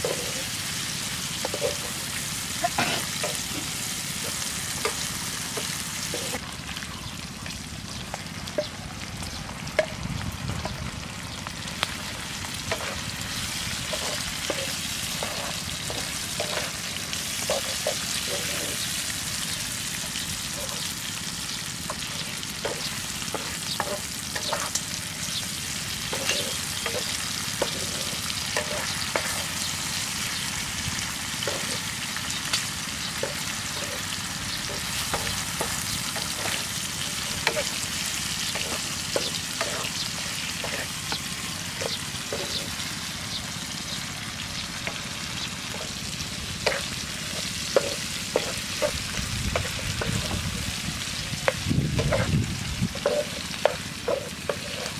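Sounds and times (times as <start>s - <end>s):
spatula scraping pan: 0.0s - 0.6s, 1.4s - 2.1s, 12.7s - 19.1s, 21.9s - 24.8s, 26.0s - 29.6s, 31.4s - 31.9s, 33.2s - 42.8s, 46.6s - 54.9s
food sizzling in oil: 0.0s - 54.9s.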